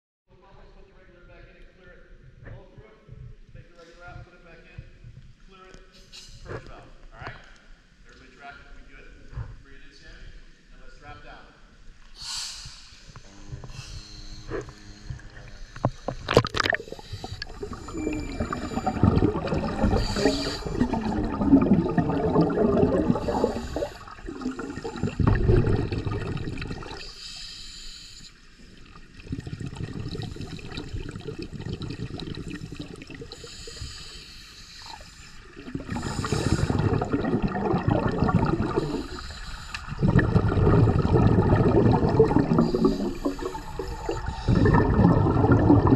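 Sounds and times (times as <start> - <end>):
underwater regulator bubbling: 13.0 - 27.2, 28.6 - 45.9.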